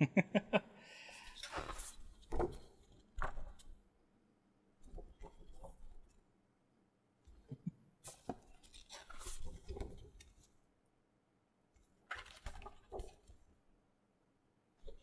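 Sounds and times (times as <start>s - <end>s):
paper prints rustling: 1.2s - 3.8s, 8.0s - 10.6s, 11.8s - 13.6s.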